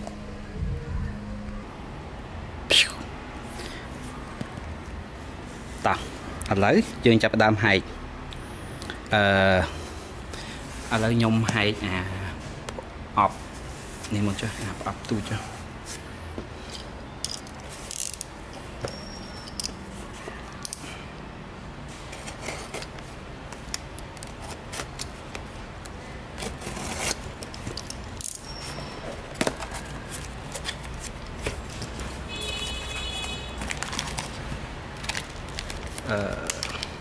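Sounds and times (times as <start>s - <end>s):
steady low hum: 0.0s - 5.4s
brief high tone: 0.1s - 1.8s
small parts and tools clicking: 17.2s - 18.4s, 19.3s - 19.8s, 27.4s - 28.5s.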